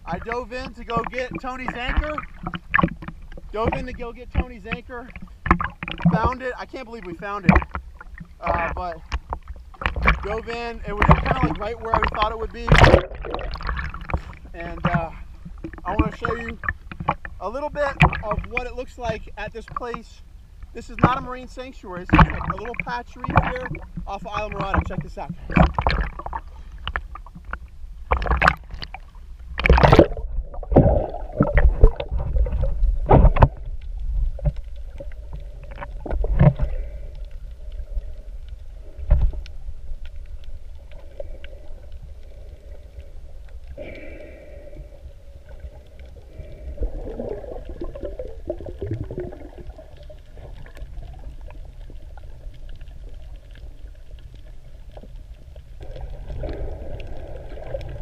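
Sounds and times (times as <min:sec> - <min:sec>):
muffled underwater rumble: 0:00.0 - 0:58.0
water splashing and sloshing: 0:00.0 - 0:58.0
faint ticks: 0:33.3 - 0:58.0.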